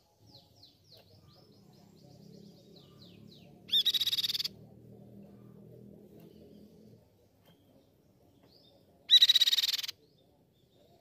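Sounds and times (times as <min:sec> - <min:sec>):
bird rapid trill: 0:03.7 - 0:04.6, 0:09.1 - 0:10.0
bird whistling notes: 0:09.1 - 0:09.9.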